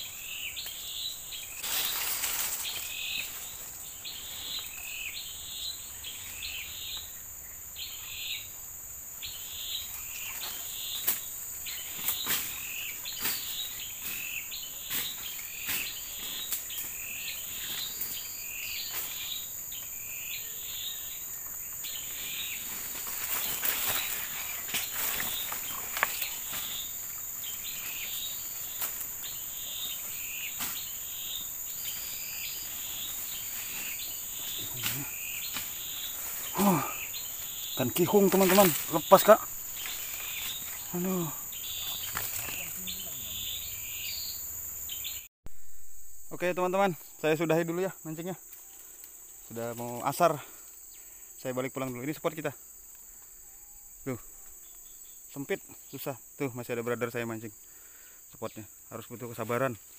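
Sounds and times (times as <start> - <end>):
insects droning: 0.0 - 59.9
rustles and clicks: 1.6 - 4.7, 22.2 - 31.0, 41.7 - 43.0
short chirping calls: 9.2 - 45.3.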